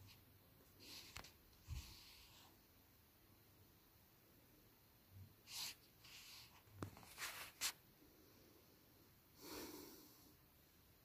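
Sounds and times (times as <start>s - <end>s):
faint short rustles: 5.5s - 7.8s.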